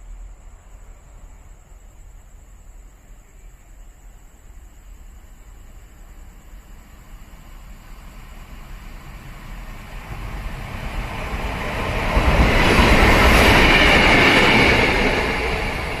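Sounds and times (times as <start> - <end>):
passing train rumble: 0.0 - 16.0.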